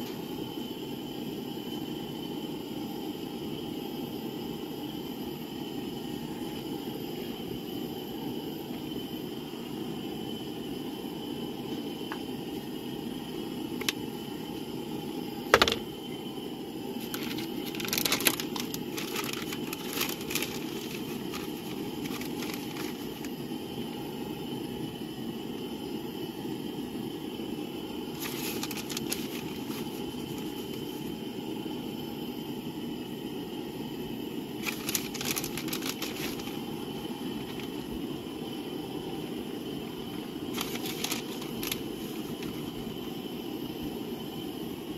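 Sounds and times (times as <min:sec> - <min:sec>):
low background rumble: 0:02.9 - 0:44.9
plastic bag crinkling: 0:17.0 - 0:23.3, 0:28.2 - 0:30.4, 0:34.6 - 0:36.6, 0:40.5 - 0:41.8.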